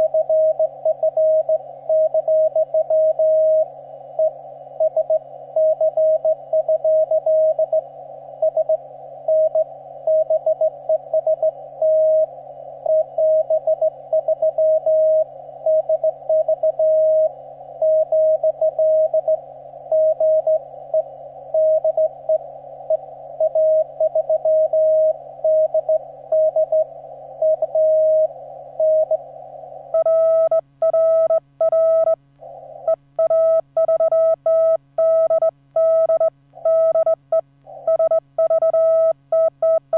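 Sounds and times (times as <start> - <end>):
morse code tone: 29.9 - 32.2, 32.9 - 39.9.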